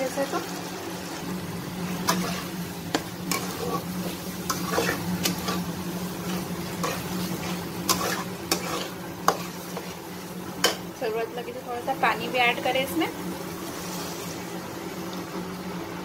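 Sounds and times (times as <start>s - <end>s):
soft sizzle of frying: 0.0s - 16.0s
steady low hum: 0.0s - 16.0s
metal spatula scraping a pan: 1.9s - 10.9s.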